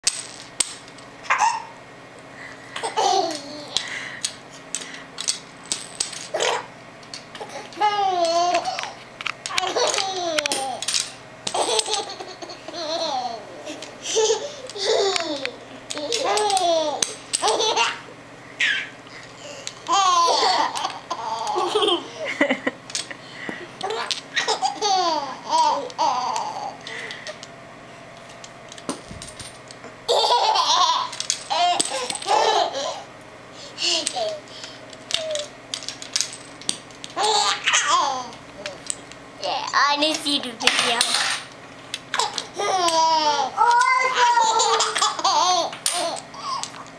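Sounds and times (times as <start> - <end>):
baby laughing: 1.3 - 1.7, 2.8 - 4.1, 7.4 - 10.8, 11.5 - 18.0, 18.6 - 22.3, 23.8 - 27.0, 30.1 - 33.1, 37.2 - 38.4, 42.2 - 46.6
infant laughing: 11.6 - 15.5, 18.6 - 22.3, 30.1 - 33.1.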